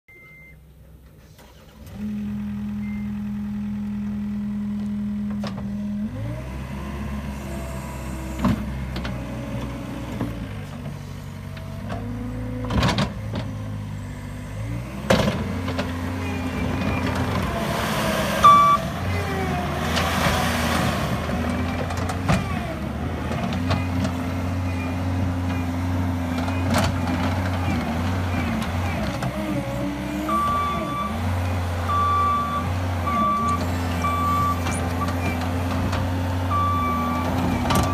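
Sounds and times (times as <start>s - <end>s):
diesel engine running: 0.3s - 37.9s
loader bucket clanks: 33.1s - 37.9s.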